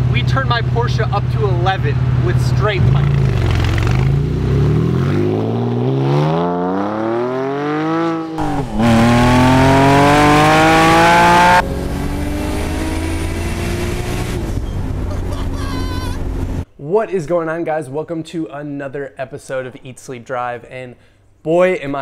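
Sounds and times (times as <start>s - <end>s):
sports car exhaust accelerating: 1.0s - 15.4s.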